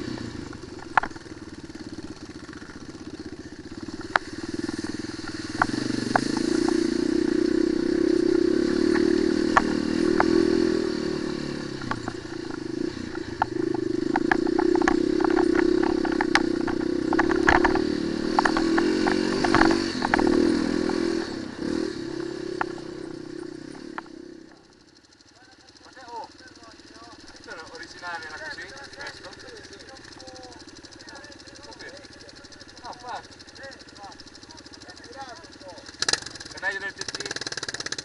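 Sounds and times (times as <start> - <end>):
motorcycle engine running: 0.0 - 38.0
loose stones clattering: 11.8 - 21.0.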